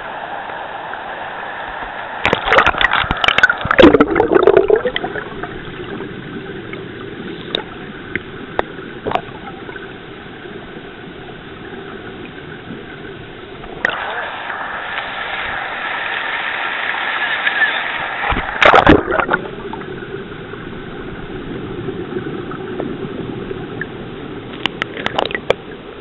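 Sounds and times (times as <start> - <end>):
water splashing and gurgling: 2.2 - 17.1, 18.0 - 26.0
river water rushing: 13.6 - 19.4.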